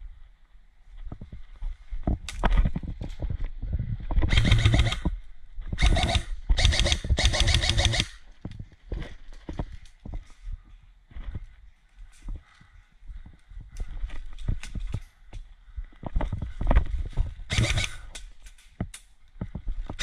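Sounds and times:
airsoft rifle full auto bursts: 0:04.3 - 0:05.0, 0:05.8 - 0:08.2, 0:17.5 - 0:18.1.

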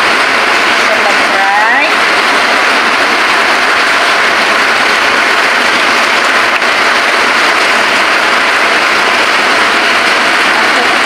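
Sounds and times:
broth boiling with loud hiss: 0:00.0 - 0:11.0.

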